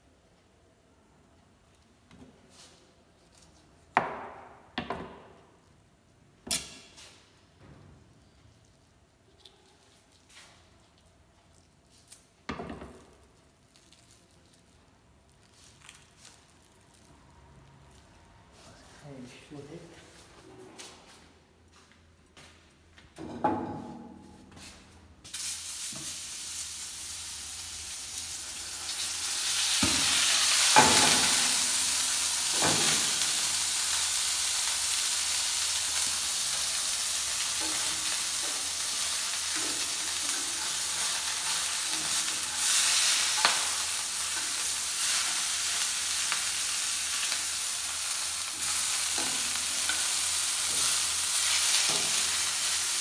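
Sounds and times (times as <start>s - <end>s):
food sizzling in oil: 25.3s - 53.0s.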